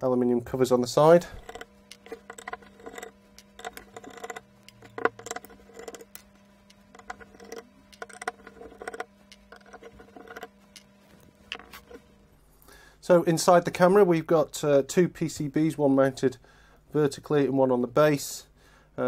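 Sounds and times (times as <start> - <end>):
screwdriver metal clicks and scrapes: 1.2 - 12.0.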